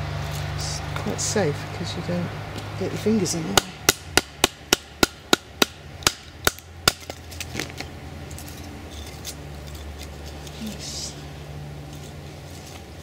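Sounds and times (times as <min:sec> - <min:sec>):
sharp wooden knocks: 0:03.5 - 0:07.7.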